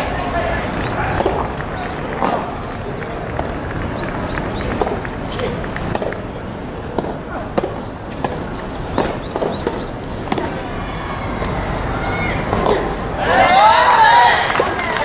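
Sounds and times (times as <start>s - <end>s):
rackets striking tennis ball: 0.6s - 13.2s
ball bouncing on hard court: 7.0s - 10.6s.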